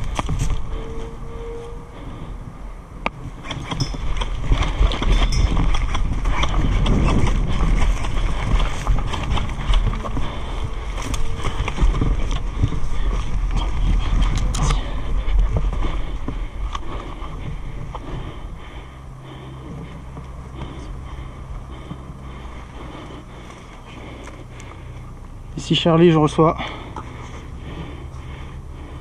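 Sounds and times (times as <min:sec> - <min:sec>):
running footsteps: 0:00.0 - 0:01.2, 0:03.2 - 0:25.4
wind buffeting microphone: 0:00.0 - 0:24.2
kit jostling against camera: 0:03.4 - 0:18.4.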